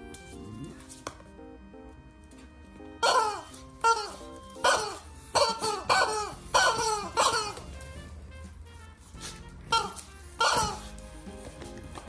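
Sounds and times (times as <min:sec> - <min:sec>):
rubber chicken toy squawking: 0:03.0 - 0:07.8, 0:09.7 - 0:10.9.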